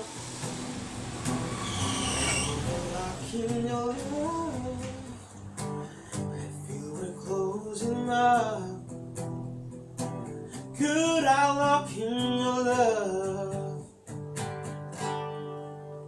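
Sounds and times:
acoustic guitar: 0.0s - 16.0s
man singing: 2.4s - 5.2s, 5.8s - 9.0s, 10.5s - 13.9s.

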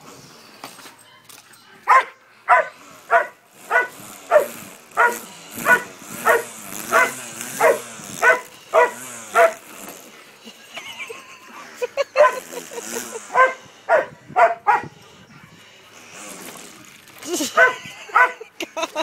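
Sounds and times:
dog barking: 1.9s - 9.6s, 12.2s - 12.4s, 13.3s - 14.9s, 17.6s - 18.4s.

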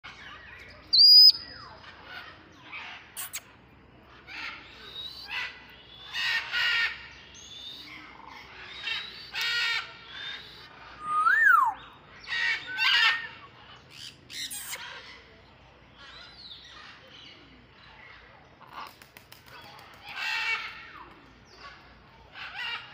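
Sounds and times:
parrot whistles: 11.0s - 11.8s
parrot squawks: 11.0s - 13.4s.

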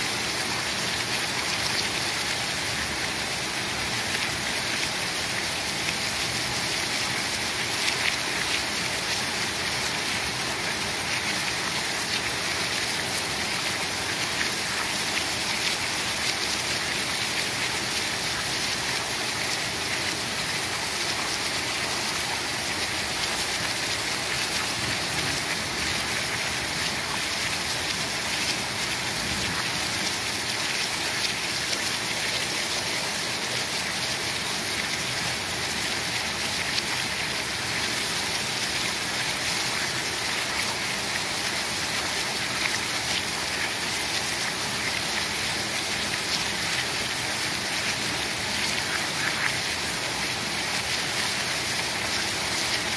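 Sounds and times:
heavy rain pouring: 0.0s - 52.9s.

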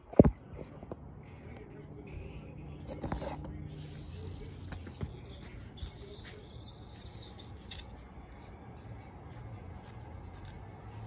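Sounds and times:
chalk scratching on concrete: 3.7s - 8.0s.

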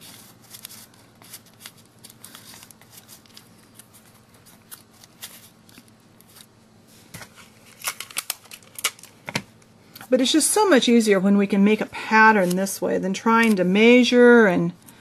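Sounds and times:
paper strips rustling: 0.0s - 6.5s, 12.3s - 12.8s.

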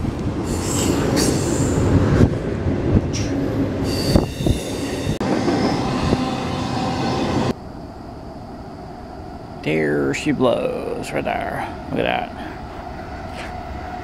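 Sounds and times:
train wheels rumbling on rail: 0.0s - 7.8s, 8.5s - 14.0s
high wheel squeal: 0.4s - 1.8s, 3.8s - 7.6s.

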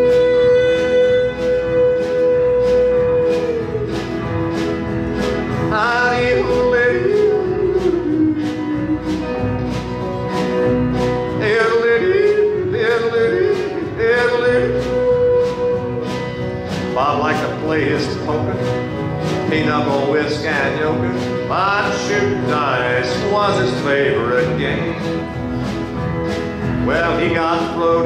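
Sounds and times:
strummed guitars: 0.0s - 28.0s.

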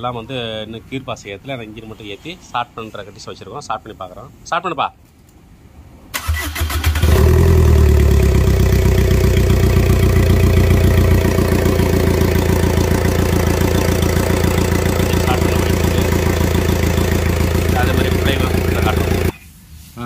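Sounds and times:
starter cranking engine: 6.2s - 19.3s
diesel engine idling: 7.0s - 19.4s.

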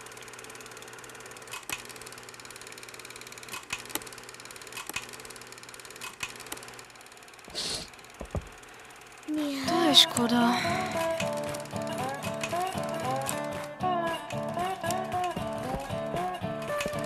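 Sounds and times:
sharp clicks: 1.5s - 2.1s, 3.4s - 5.3s, 6.0s - 6.7s, 10.9s - 13.7s
steady low hum: 6.5s - 13.3s.

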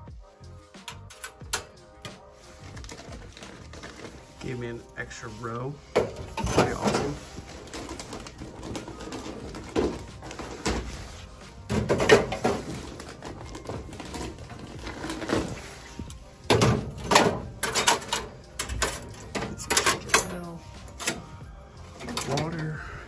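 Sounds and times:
cans clanking in metal racks: 5.8s - 11.0s, 11.6s - 15.8s, 16.5s - 21.3s, 22.0s - 22.8s.

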